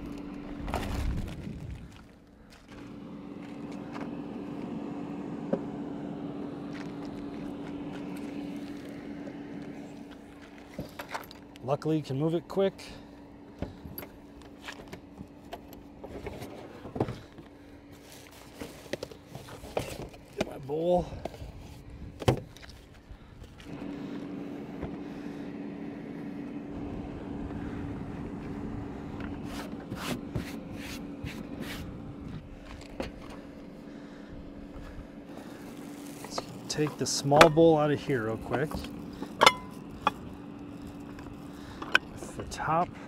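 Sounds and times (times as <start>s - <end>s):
steady low hum: 0.0s - 43.0s
cooking gear rustling and scraping: 14.5s - 21.9s, 35.3s - 42.8s.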